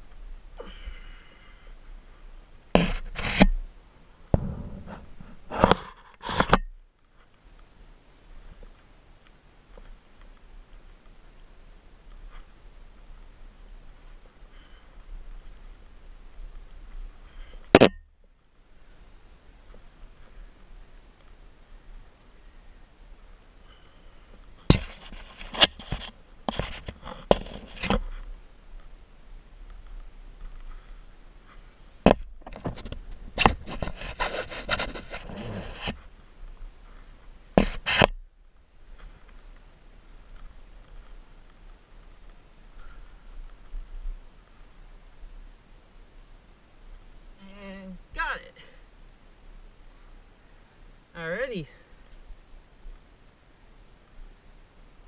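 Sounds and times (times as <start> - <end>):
scrapes against rock face: 2.8 - 3.6, 4.4 - 6.7, 24.6 - 28.3, 30.4 - 36.1, 36.8 - 38.2
sharp knock on rock: 4.3 - 4.9.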